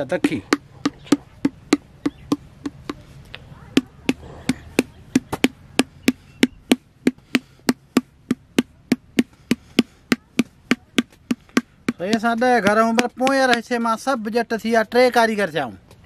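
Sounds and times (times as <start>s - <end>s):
wooden paddle knocking clay pot: 0.0s - 3.1s, 3.8s - 14.0s.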